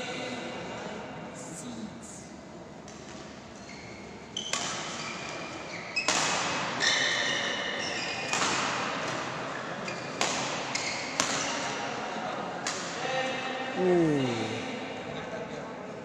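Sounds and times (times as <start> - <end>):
shoes squeaking on court: 3.6 - 6.2, 9.6 - 11.2.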